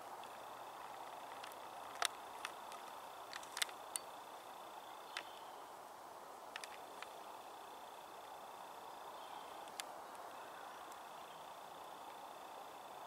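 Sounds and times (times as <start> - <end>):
outdoor background hiss: 0.0 - 13.0
sharp clicks: 6.5 - 7.1
faint high steady tone: 6.6 - 13.0.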